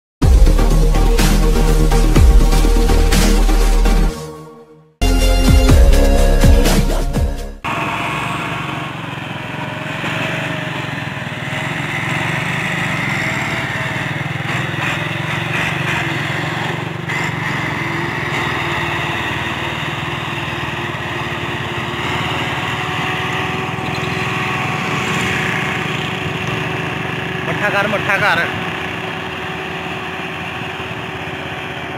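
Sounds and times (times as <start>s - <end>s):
diesel tractor engine under load: 7.6s - 31.9s.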